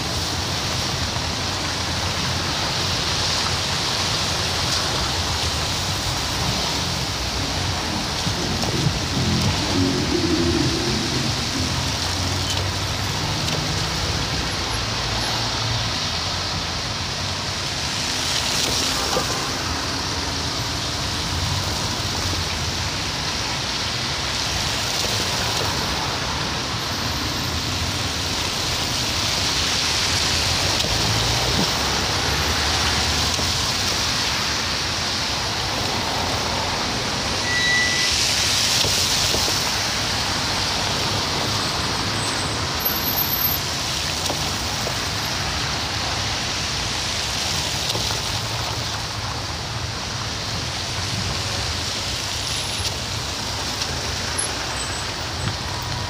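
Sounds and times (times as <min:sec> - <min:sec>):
tyres hissing on wet road: 0:00.0 - 0:56.0
low engine rumble: 0:06.4 - 0:13.4.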